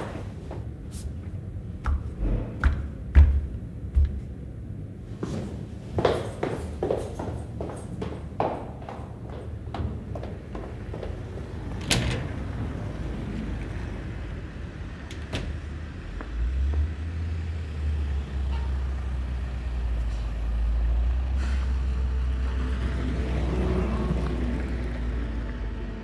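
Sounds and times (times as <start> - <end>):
street ambience: 0.0 - 26.0
large vehicle engine rumbling: 9.2 - 26.0.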